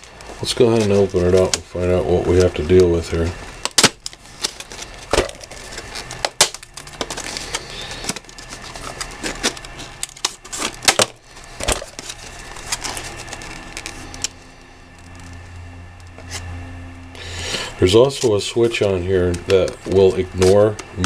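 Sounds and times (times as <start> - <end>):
plastic package crackling: 0.0 - 16.5, 17.4 - 21.0.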